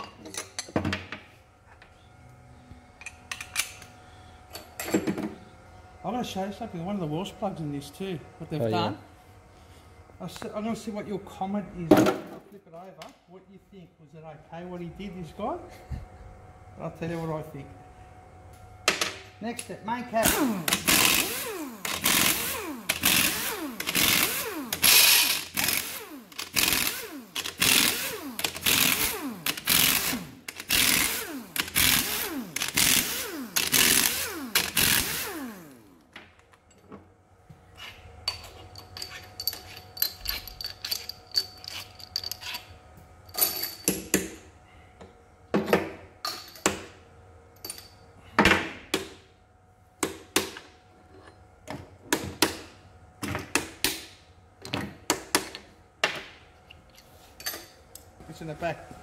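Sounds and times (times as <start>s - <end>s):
pneumatic impact wrench bursts: 20.2s - 36.0s
metal clinks: 38.3s - 42.7s, 43.3s - 44.0s.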